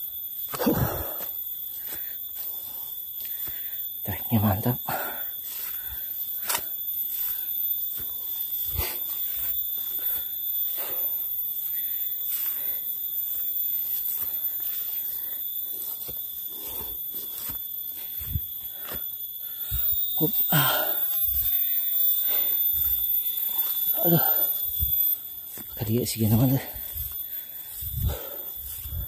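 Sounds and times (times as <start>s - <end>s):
high-pitched insect drone: 0.0s - 29.0s
man panting heavily: 0.6s - 3.9s, 4.9s - 6.2s, 26.7s - 29.0s
footsteps brushing through undergrowth: 13.2s - 19.0s.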